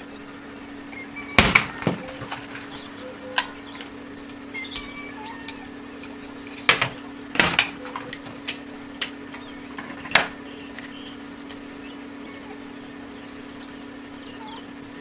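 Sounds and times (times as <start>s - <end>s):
steady low hum: 0.0s - 15.0s
plastic fan clicks and cracks: 0.9s - 11.7s.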